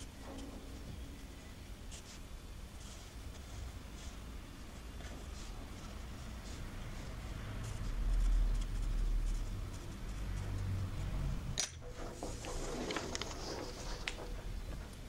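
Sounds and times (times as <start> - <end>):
pencil scratching on paper: 5.1 - 11.2, 11.9 - 15.0
paper rustling: 12.0 - 14.4.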